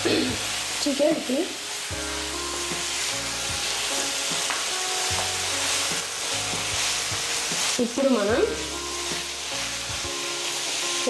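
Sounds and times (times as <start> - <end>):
chicken sizzling in a frying pan: 0.0 - 11.0
soft background music: 0.0 - 11.0.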